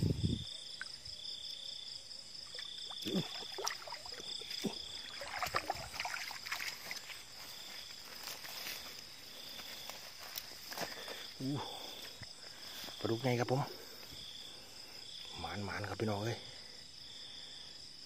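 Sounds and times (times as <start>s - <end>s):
insect high-pitched trill: 0.0s - 18.0s
insect pulsing call: 0.0s - 18.0s
rustling in grass: 5.2s - 13.0s
footsteps through grass: 5.2s - 13.2s.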